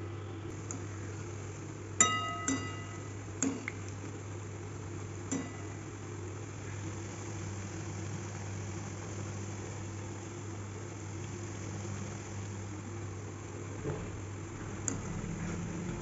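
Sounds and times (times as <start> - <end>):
metal skimmer clinking on pan: 2.0 - 3.6.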